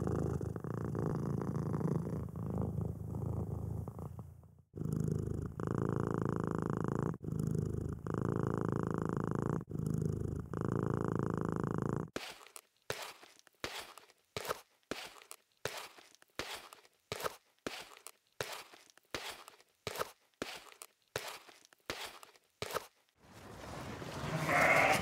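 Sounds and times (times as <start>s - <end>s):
cat purring: 0.0s - 12.2s.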